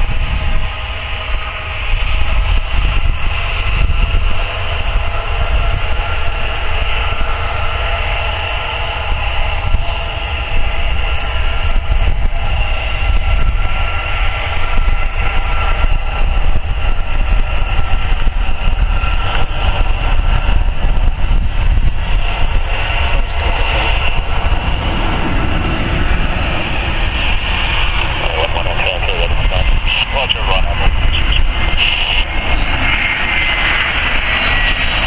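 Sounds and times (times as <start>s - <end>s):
jet engines whining: 0.0s - 35.0s
wind buffeting microphone: 0.0s - 35.0s.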